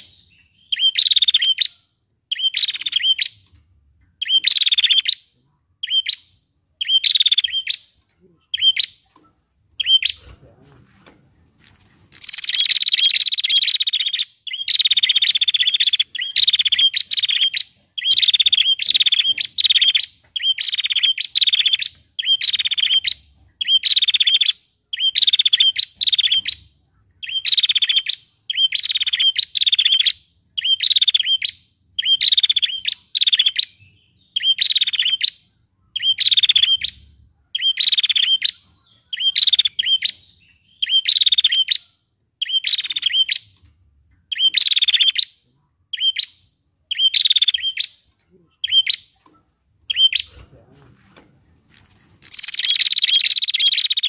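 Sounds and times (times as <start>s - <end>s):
bird rattling trill: 11.6s - 24.4s.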